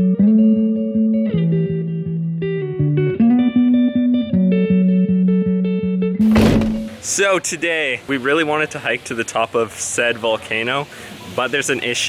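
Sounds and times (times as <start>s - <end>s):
guitar music with bass and beat: 0.0s - 7.0s.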